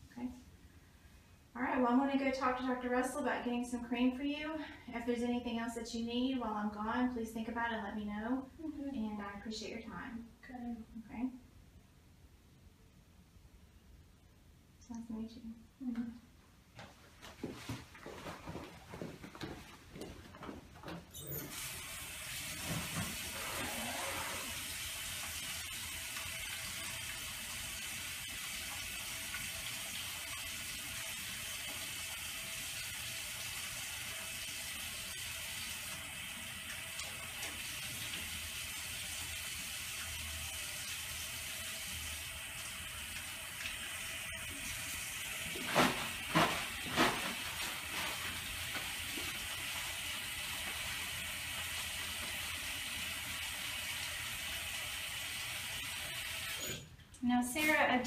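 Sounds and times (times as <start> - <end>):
shuffling sounds: 16.7 - 21.0, 45.6 - 49.3
tap water running: 21.2 - 56.7.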